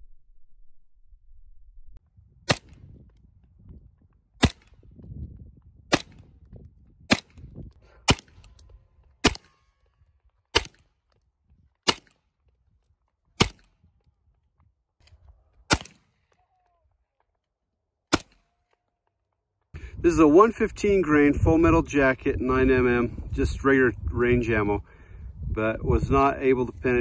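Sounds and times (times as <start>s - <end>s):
rifle shots echoing: 2.5s - 2.9s, 4.4s - 4.8s, 5.9s - 6.3s, 7.1s - 7.4s, 8.0s - 8.6s, 9.2s - 9.8s, 10.5s - 10.9s, 11.8s - 12.2s, 13.4s - 13.7s, 15.7s - 16.2s, 18.1s - 18.5s.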